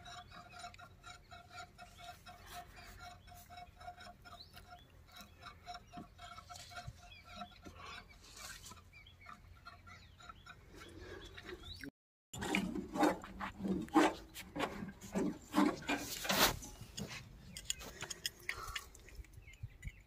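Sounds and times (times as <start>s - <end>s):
knocks clinks and scrapes: 12.4s - 20.0s
tools clicking and rubbing: 15.5s - 20.0s.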